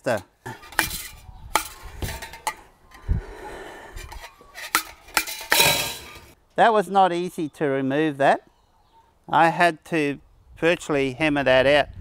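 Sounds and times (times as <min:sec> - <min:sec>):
metal scraping and rubbing: 0:00.1 - 0:03.0, 0:03.9 - 0:06.4.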